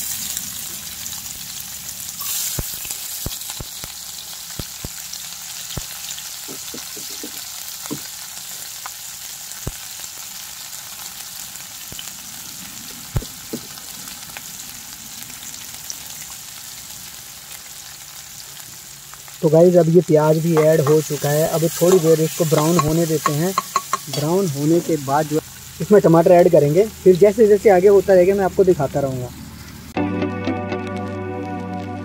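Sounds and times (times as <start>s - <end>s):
onion sizzling in hot oil: 0.0s - 30.0s
spoon knocking against pan: 6.5s - 8.1s, 20.6s - 21.2s, 21.8s - 24.4s.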